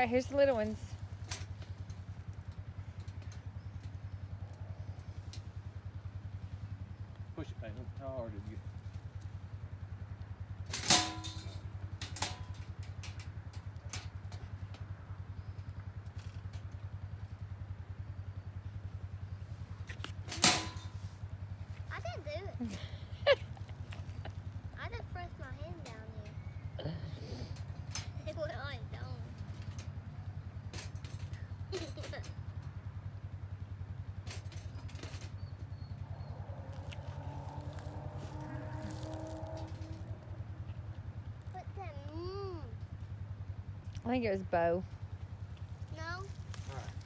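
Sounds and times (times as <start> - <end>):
engine idling: 0.0 - 47.0
metal clicks of wire cage: 1.2 - 4.1, 10.7 - 14.8, 19.8 - 21.0, 27.5 - 28.1, 29.3 - 30.0, 30.7 - 32.3, 34.2 - 40.3.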